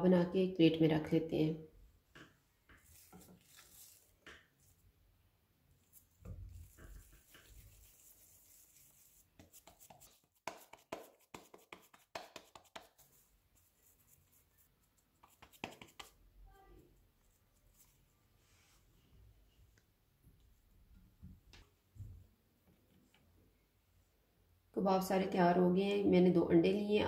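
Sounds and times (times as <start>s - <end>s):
hands patting food patty: 6.2s - 13.2s, 15.1s - 16.2s.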